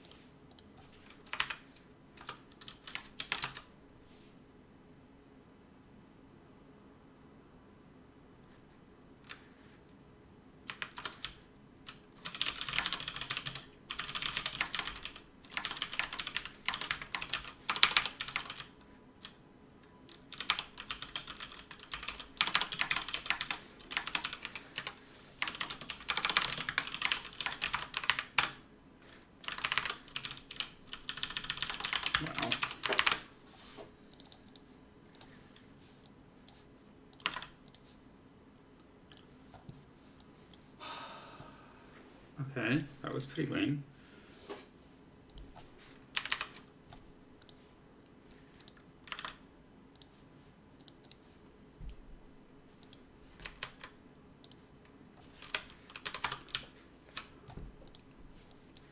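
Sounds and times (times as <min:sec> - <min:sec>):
fast typing on keyboard: 0:01.1 - 0:01.6, 0:02.2 - 0:03.7, 0:10.7 - 0:19.4, 0:20.1 - 0:28.6, 0:29.4 - 0:33.3, 0:37.2 - 0:37.6, 0:46.1 - 0:46.7, 0:48.6 - 0:49.4, 0:52.9 - 0:54.6, 0:55.2 - 0:57.3.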